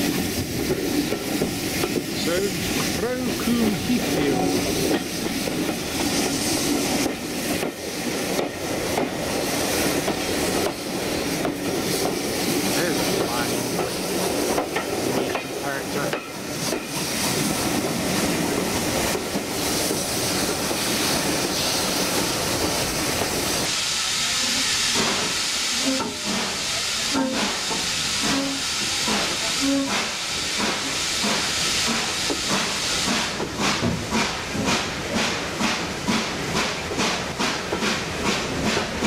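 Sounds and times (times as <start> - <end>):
regular locomotive beat: 0.0 - 39.0
steam hissing: 0.0 - 39.0
train running noise: 0.0 - 39.0.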